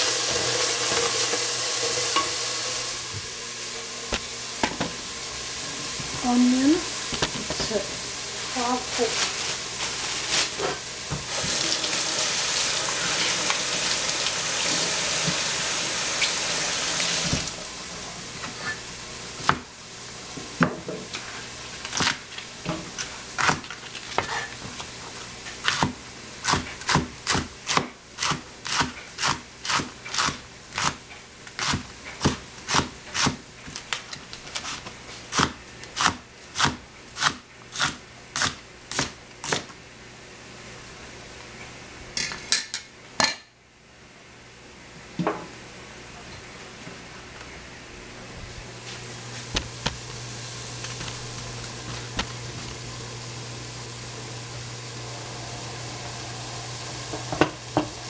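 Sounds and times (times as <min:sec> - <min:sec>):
vegetables sizzling in frying pan: 0:00.0 - 0:17.9, 0:49.1 - 0:58.0
knife chopping on cutting board: 0:31.6 - 0:33.4.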